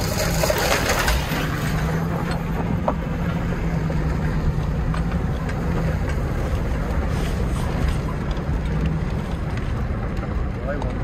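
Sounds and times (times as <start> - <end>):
engine running: 0.0 - 11.0.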